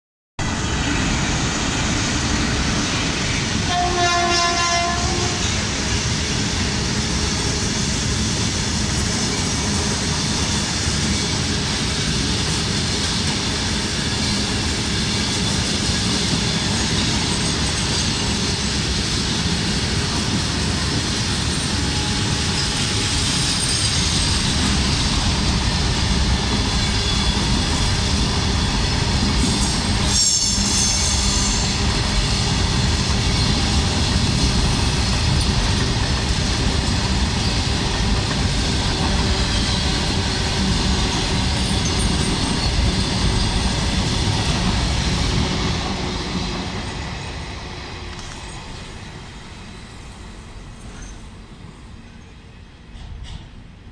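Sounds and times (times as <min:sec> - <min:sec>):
train wheels on rails: 0:00.4 - 0:53.9
locomotive horn: 0:03.6 - 0:05.6.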